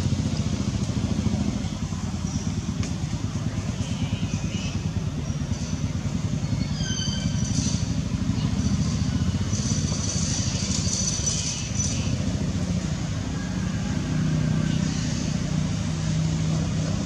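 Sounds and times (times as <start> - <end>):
engine rumbling: 0.0 - 17.0
high squeal: 6.4 - 8.0.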